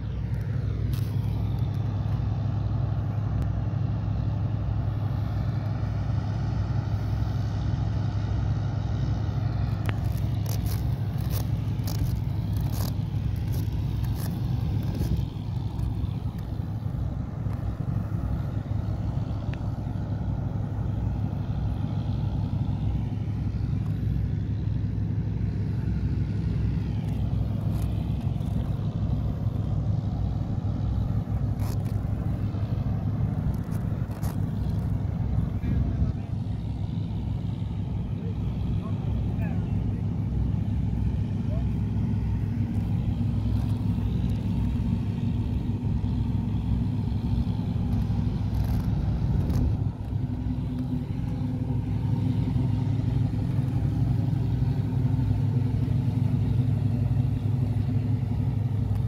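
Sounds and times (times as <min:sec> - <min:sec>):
skate wheels rolling on concrete: 0:09.6 - 0:19.9, 0:30.8 - 0:37.0.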